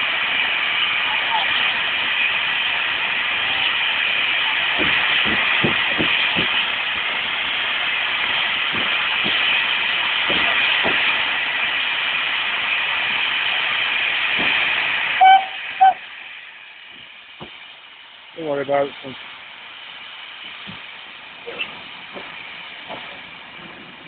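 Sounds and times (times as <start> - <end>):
steam hissing: 0.0 - 24.0
steam whistle toots: 15.2 - 16.1.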